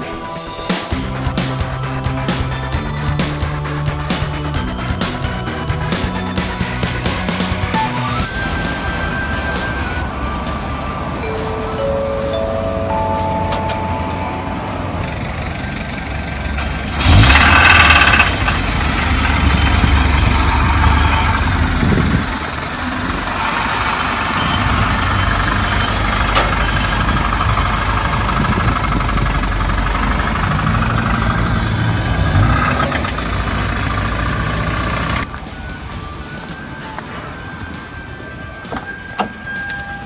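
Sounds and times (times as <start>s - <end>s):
engine running with rattling knock: 14.7s - 35.8s.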